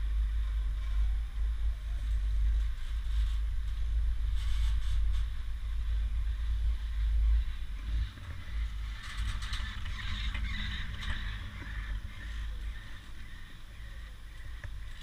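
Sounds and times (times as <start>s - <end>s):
low rumble: 0.0s - 15.0s
chairlift grip clicking and rattling: 8.9s - 11.6s.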